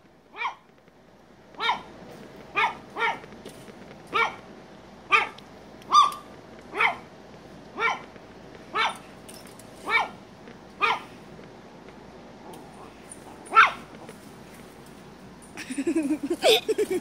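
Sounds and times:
dog barking: 0:00.4 - 0:00.6, 0:01.6 - 0:01.9, 0:02.5 - 0:03.2, 0:04.1 - 0:04.4, 0:05.1 - 0:07.1, 0:07.8 - 0:08.1, 0:08.7 - 0:09.0, 0:09.9 - 0:10.2, 0:10.8 - 0:11.1, 0:13.5 - 0:13.9.

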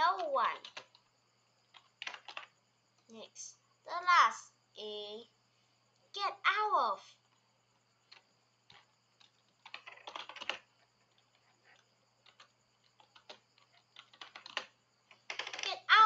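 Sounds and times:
keyboard typing clicks: 0:00.6 - 0:01.1, 0:01.7 - 0:02.5, 0:08.1 - 0:15.7.

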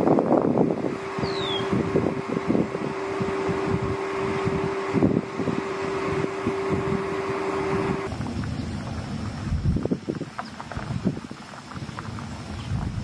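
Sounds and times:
steady low hum: 0:00.0 - 0:10.1
wind buffeting microphone: 0:00.0 - 0:13.0.

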